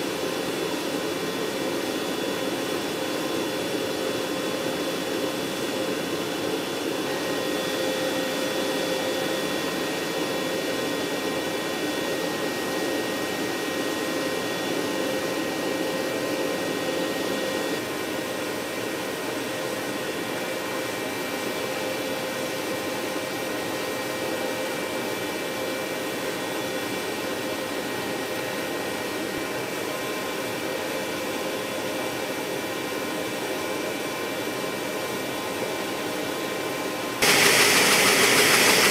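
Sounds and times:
gas turbine whine and air rush: 0.0 - 30.8, 35.6 - 38.9.

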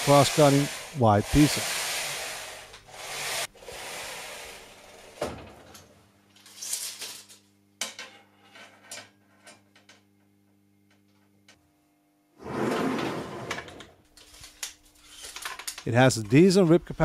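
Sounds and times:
saw table rolling on rails: 0.0 - 5.2, 12.4 - 14.0.

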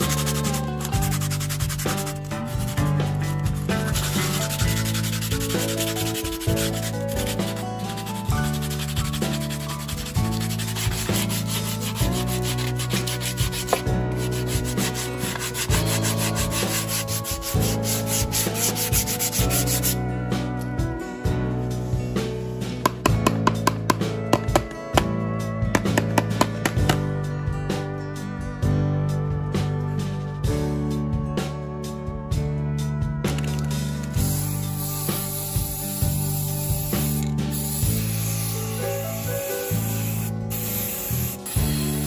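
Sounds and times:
sandpaper rubbing on plastic: 0.0 - 20.0, 34.3 - 42.0.

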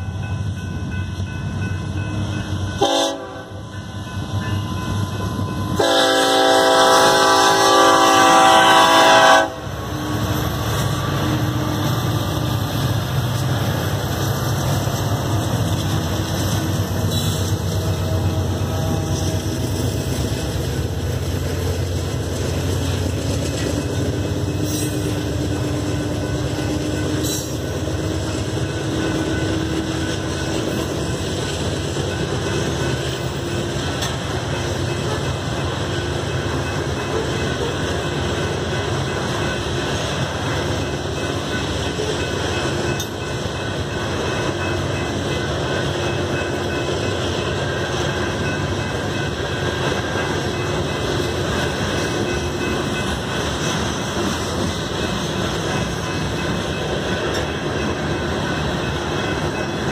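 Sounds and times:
rolling train wheels: 0.0 - 59.9
train engines rumbling: 0.0 - 59.9
locomotive air horn blowing: 2.8 - 3.6, 5.8 - 9.8, 17.1 - 19.6.

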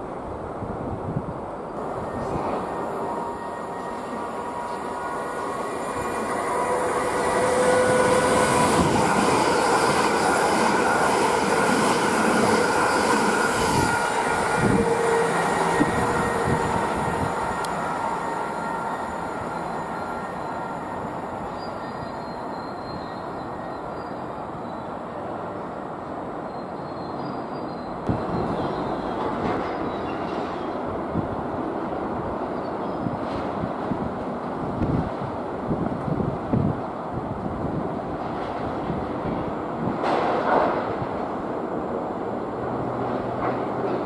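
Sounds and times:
electric train rumble: 0.0 - 26.4
thin whining tones: 1.8 - 24.2.

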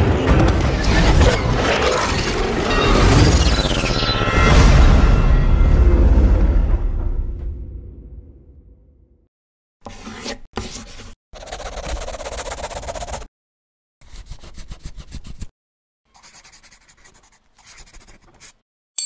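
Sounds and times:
pencil scribbling on paper: 9.8 - 13.3, 14.0 - 15.5, 16.1 - 18.6.

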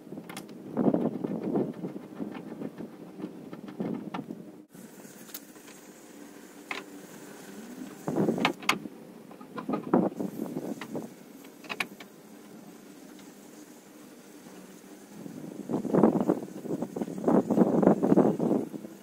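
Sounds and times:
clicking and rattling: 0.2 - 4.5.

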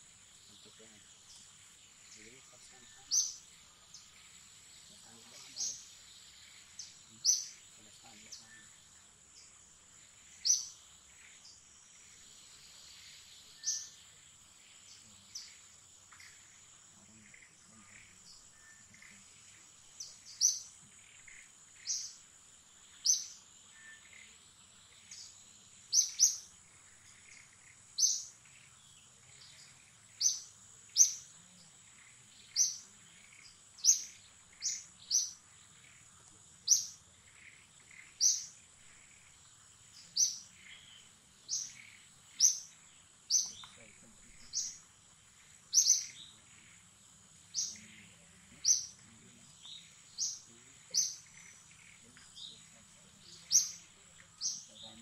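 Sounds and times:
bird chirping: 0.0 - 55.0
high-pitched insect drone: 0.0 - 55.0.

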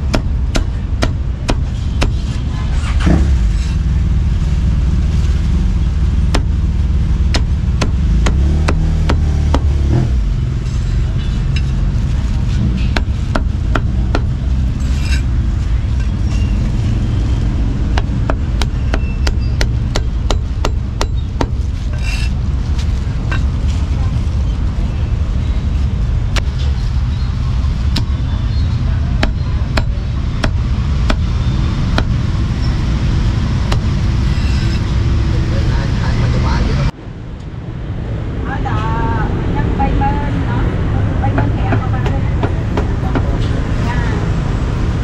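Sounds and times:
traffic rumble: 0.0 - 45.0
cleaver chopping on wooden block: 7.3 - 9.8.

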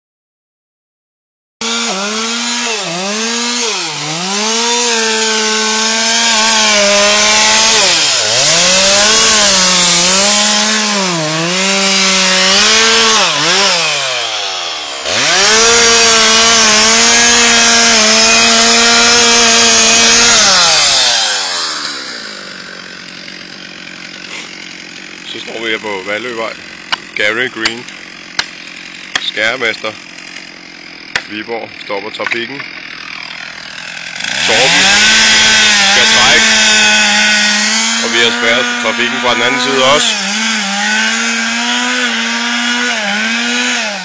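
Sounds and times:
chainsaw cutting tree trunk: 1.6 - 44.0.

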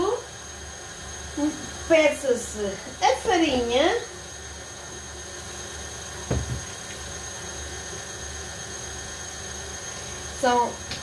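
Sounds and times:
electric stand mixer whisking: 0.0 - 11.0
single knock: 6.3 - 6.6.

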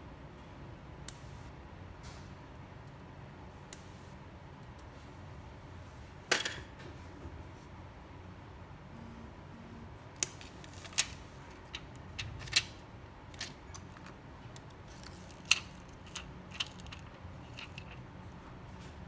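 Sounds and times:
low steady hum: 0.0 - 19.0
small tools clicking and tapping: 10.2 - 18.0.

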